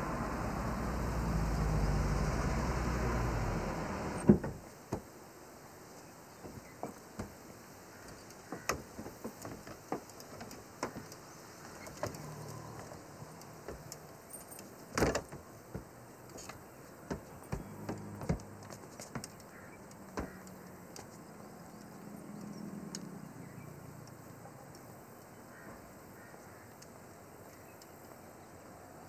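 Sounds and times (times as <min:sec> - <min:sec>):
engine running: 0:00.0 - 0:04.3
stretcher clicks and knocks: 0:08.0 - 0:21.2.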